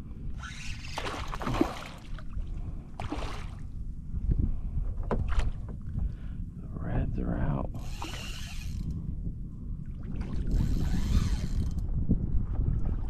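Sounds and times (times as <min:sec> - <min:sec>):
wind rumble on microphone: 0:00.0 - 0:13.0
water splashing and sloshing: 0:00.4 - 0:03.8, 0:04.8 - 0:06.2, 0:09.8 - 0:13.0.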